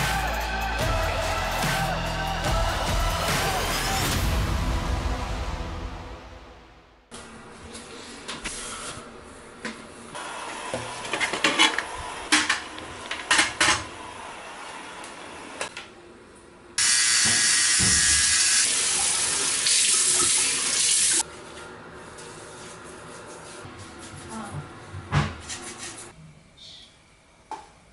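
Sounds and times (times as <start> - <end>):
sink tap running: 16.8 - 21.2.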